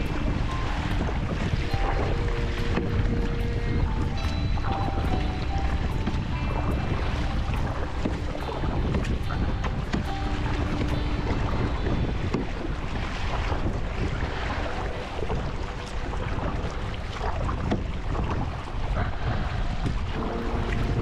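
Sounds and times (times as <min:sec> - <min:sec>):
water splashing and lapping: 0:00.0 - 0:21.0
wind rumbling on microphone: 0:00.0 - 0:21.0.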